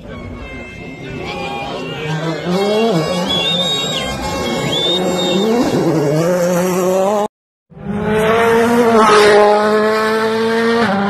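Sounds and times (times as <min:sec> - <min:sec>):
tyre squeal: 0:00.1 - 0:05.9
rally car engine revving: 0:00.7 - 0:11.0.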